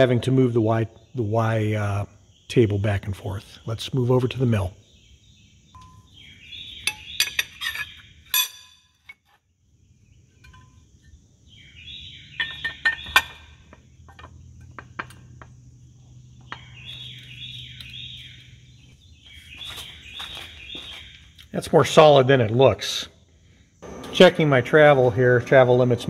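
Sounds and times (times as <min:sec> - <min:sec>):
bird chirping: 0:00.0 - 0:26.0
metal clinks and knocks: 0:10.4 - 0:11.2, 0:12.4 - 0:15.7.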